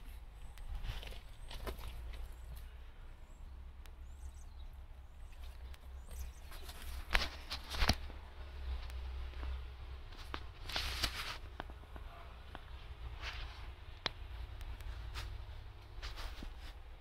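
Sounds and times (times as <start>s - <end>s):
faint bird chirps: 0.3s - 6.8s
footsteps: 10.1s - 17.0s.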